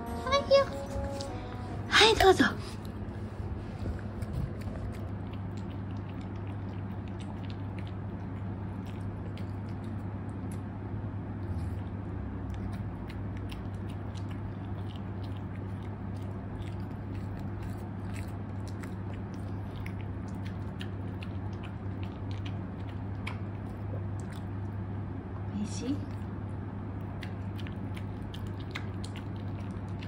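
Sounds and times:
low hum: 0.0 - 30.0
dog chewing and licking: 2.2 - 24.9, 26.1 - 30.0.

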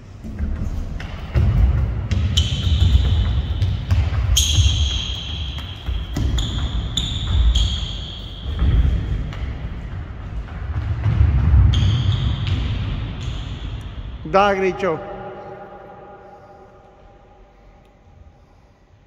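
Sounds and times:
shoes squeaking on floor: 2.2 - 9.3.

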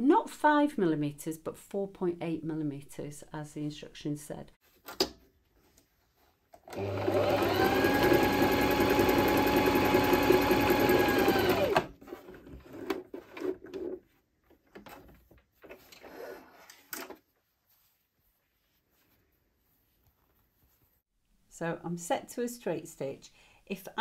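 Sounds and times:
sewing machine stitching: 6.6 - 13.6
fabric rustling: 17.2 - 21.1.

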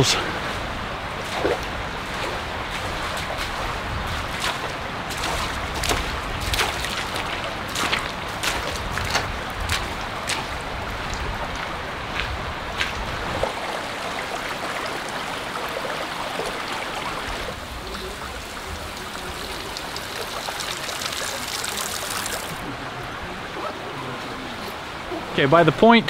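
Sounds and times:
creek trickling over gravel: 1.1 - 22.6
footsteps splashing through water: 1.2 - 13.6.

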